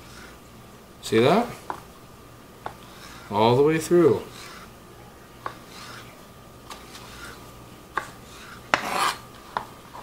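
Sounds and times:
knife scraping across board: 0.0s - 0.4s, 2.7s - 3.4s, 4.0s - 4.7s, 5.4s - 7.4s, 8.0s - 10.0s.

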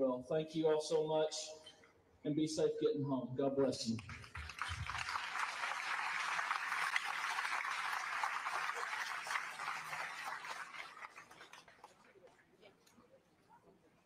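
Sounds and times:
crowd applauding: 4.0s - 12.2s.

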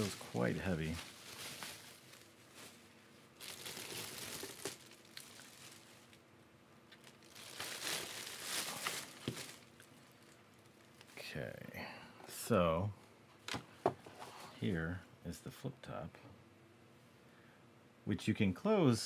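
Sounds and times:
plastic wrap crinkling: 0.0s - 6.3s, 6.9s - 11.2s.

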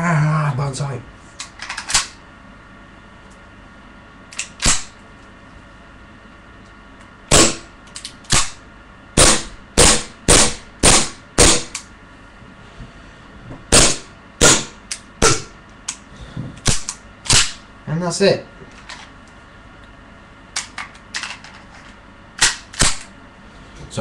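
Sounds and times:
airsoft pistol shots: 7.3s - 7.7s, 9.2s - 11.8s, 13.7s - 15.5s.

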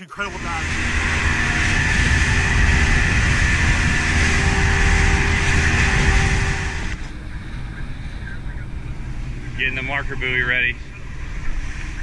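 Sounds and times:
outboard motor droning: 0.1s - 12.0s
rush of wind and spray: 0.4s - 9.6s.

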